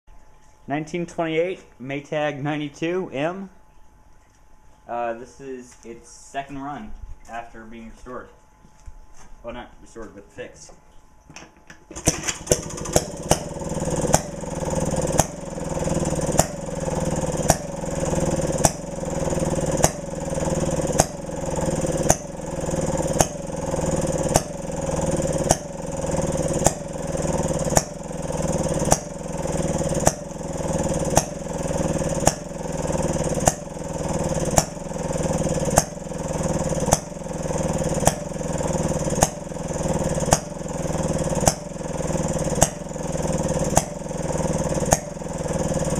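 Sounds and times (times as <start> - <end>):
two-stroke engine running: 11.8 - 45.9.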